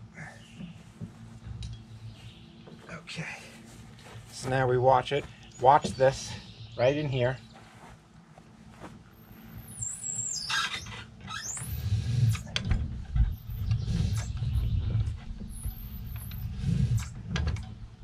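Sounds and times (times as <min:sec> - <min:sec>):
pulley squeaking: 0:09.7 - 0:17.1
rope and anchor rumbling: 0:10.2 - 0:18.0.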